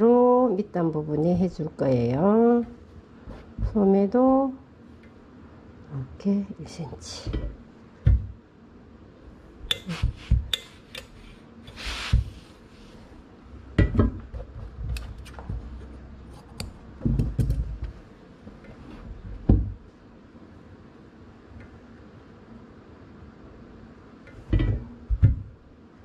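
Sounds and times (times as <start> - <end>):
steam iron knocks and thumps: 7.2 - 8.4, 13.8 - 15.7, 24.5 - 25.6.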